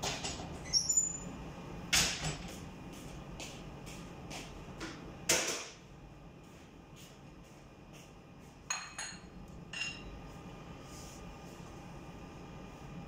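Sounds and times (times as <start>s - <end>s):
dishware clinking: 8.7s - 10.1s
kitchenware scraping: 8.7s - 10.2s.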